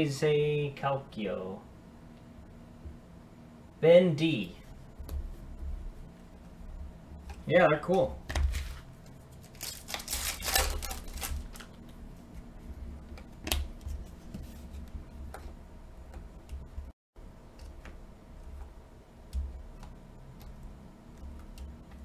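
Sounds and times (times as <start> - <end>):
trading cards clicking and sliding: 7.3 - 11.9
pack wrapper rustling: 9.4 - 11.7.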